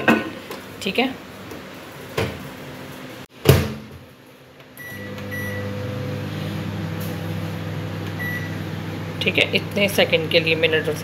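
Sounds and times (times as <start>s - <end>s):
microwave oven humming: 4.6s - 11.0s
short beeps: 8.2s - 8.6s.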